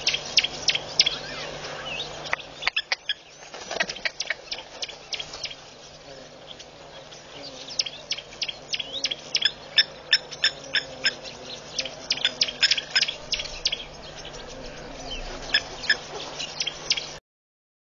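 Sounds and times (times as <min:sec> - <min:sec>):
plover alarm calls: 0:00.0 - 0:17.2.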